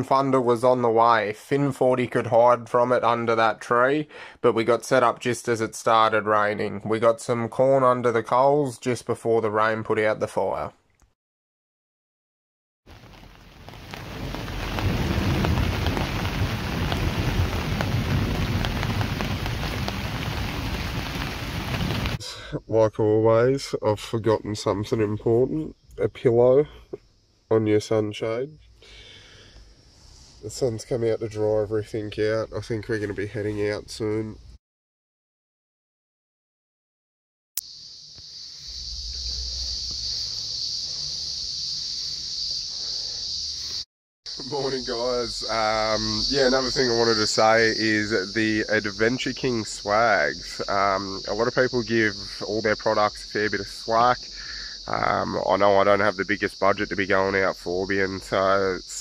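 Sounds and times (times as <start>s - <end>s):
heavy rain pouring: 12.9s - 22.2s, 44.4s - 50.7s
insects droning: 12.9s - 34.6s, 37.6s - 59.0s
deep rumble: 13.0s - 22.2s, 38.6s - 43.1s
low rumble: 38.6s - 42.1s.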